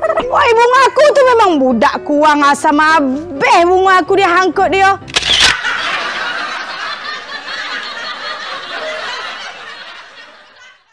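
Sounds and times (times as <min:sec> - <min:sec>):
audience laughter: 0:05.5 - 0:10.9.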